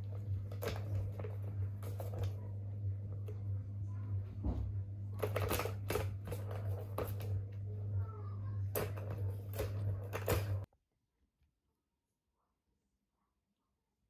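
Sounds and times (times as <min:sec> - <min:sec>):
steady low hum: 0:00.0 - 0:10.7.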